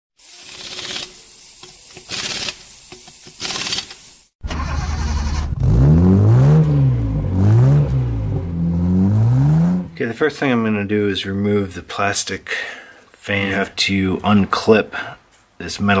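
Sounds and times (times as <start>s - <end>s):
car engine starting and revving: 4.4s - 10.0s.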